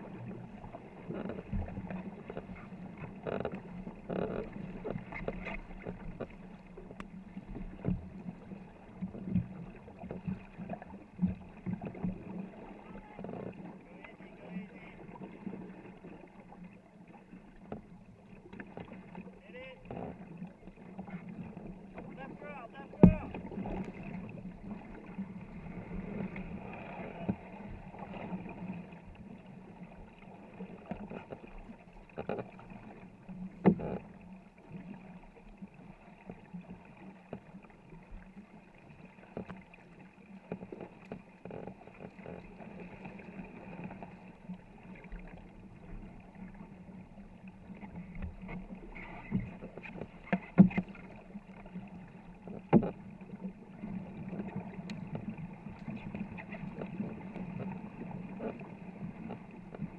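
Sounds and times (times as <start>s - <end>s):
paddles splashing in water: 0.0s - 59.9s.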